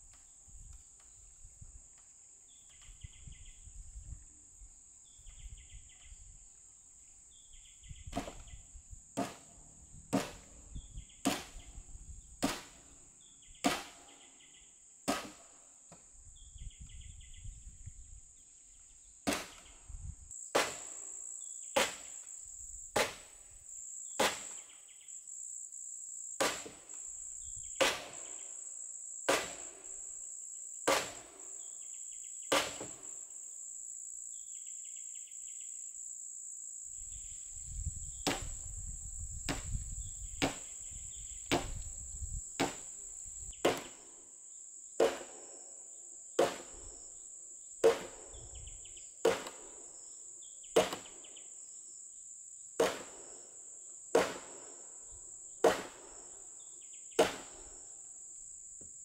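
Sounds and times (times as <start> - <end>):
high insect drone: 0.2 - 12.4, 18.4 - 59.0
sledgehammer striking wood: 8.1 - 8.5, 9.2 - 10.6, 11.2 - 11.7, 12.4 - 12.8, 13.6 - 14.2, 15.1 - 15.6, 19.2 - 19.7, 20.5 - 21.0, 21.8 - 22.2, 23.0 - 23.4, 24.2 - 24.6, 26.4 - 26.9, 27.8 - 28.3, 29.3 - 29.8, 30.9 - 31.4, 32.5 - 33.1, 38.2 - 38.6, 39.5 - 39.8, 40.4 - 40.7, 41.5 - 41.8, 42.6 - 43.0, 43.6 - 44.0, 45.0 - 45.4, 46.4 - 46.8, 47.8 - 48.3, 49.2 - 49.7, 50.8 - 51.2, 52.8 - 53.2, 54.2 - 54.6, 55.6 - 56.0, 57.2 - 57.6.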